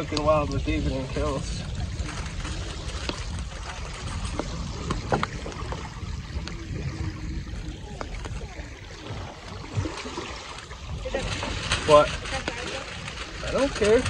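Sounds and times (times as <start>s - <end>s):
low wind rumble on microphone: 0.0s - 14.0s
clicks and foil crinkles: 11.2s - 14.0s.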